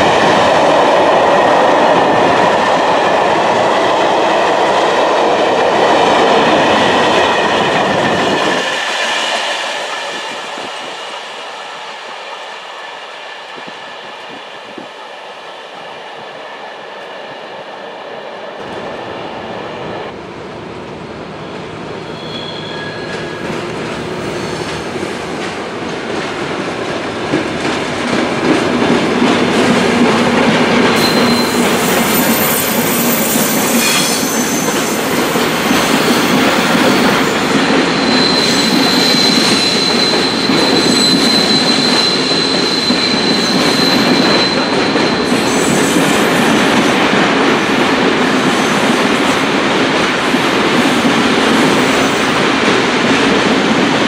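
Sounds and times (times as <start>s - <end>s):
train rushing past: 0.0s - 54.0s
wheel squeals: 22.0s - 23.5s, 31.0s - 37.2s, 38.0s - 46.4s.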